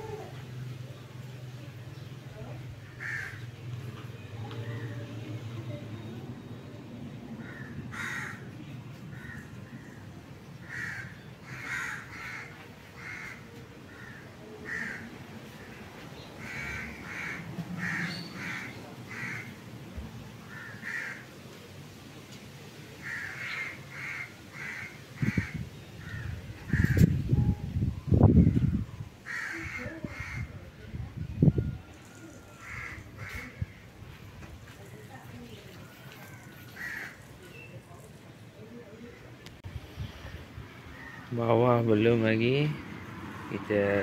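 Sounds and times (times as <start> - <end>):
crows cawing: 2.8 - 3.5, 7.4 - 8.5, 9.1 - 10.0, 10.6 - 15.8, 16.4 - 19.6, 20.5 - 21.3, 23.0 - 27.1, 29.2 - 30.5, 32.4 - 33.9, 36.1 - 37.3, 40.9 - 41.3.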